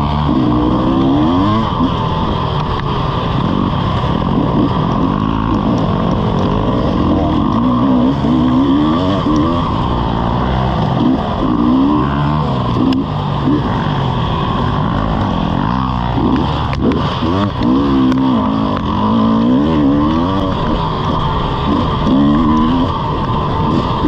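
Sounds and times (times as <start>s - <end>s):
dirt bike engine revving: 0.0s - 24.0s.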